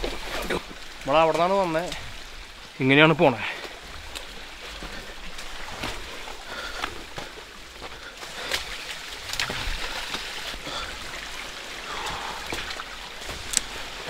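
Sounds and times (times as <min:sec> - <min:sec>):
water trickling: 0:00.0 - 0:14.0
footsteps squelching in mud: 0:03.6 - 0:14.0.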